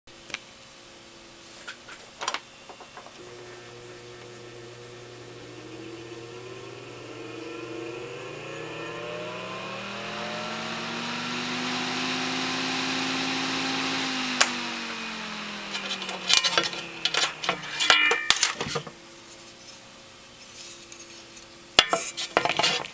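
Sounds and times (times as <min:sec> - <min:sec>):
electric fan humming and whining: 0:00.2 - 0:22.9.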